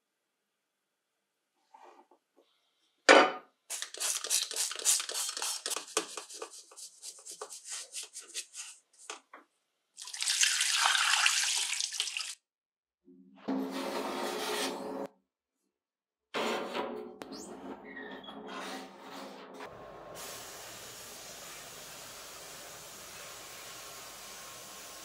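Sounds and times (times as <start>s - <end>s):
brush scrubbing metal: 3.7s - 9.2s
tap water running: 10.0s - 12.4s, 20.2s - 25.0s.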